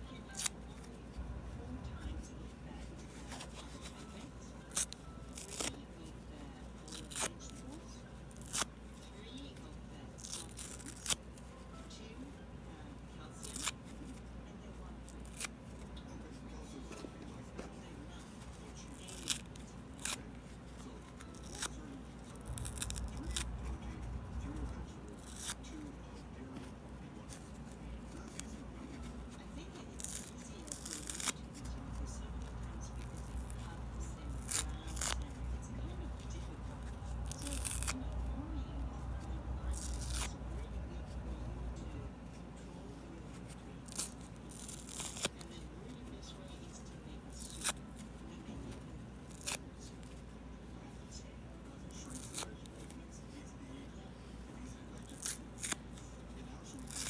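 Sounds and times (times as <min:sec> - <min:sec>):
foam sponge tearing: 0:01.9 - 0:05.8, 0:06.8 - 0:07.6, 0:08.3 - 0:08.7, 0:10.1 - 0:11.2, 0:13.4 - 0:14.2, 0:15.0 - 0:15.6, 0:18.6 - 0:20.5, 0:21.1 - 0:25.7, 0:27.2 - 0:38.3, 0:39.1 - 0:40.6, 0:43.3 - 0:45.5, 0:47.3 - 0:48.0, 0:49.2 - 0:50.1, 0:51.9 - 0:52.6, 0:55.0 - 0:56.0, 0:56.6 - 0:57.0
foam ripping: 0:22.3 - 0:23.5, 0:34.3 - 0:35.3, 0:37.2 - 0:38.0.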